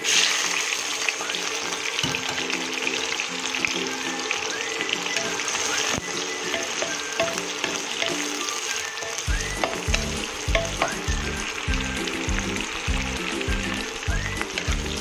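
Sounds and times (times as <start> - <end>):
onion and garlic sizzling in oil: 0.0 - 15.0
background music with bass beat: 9.3 - 15.0.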